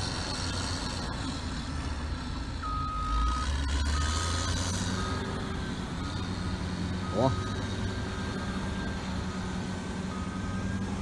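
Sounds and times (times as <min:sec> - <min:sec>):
diesel engine running: 0:00.0 - 0:11.0
reversing alarm beeps: 0:02.6 - 0:11.0.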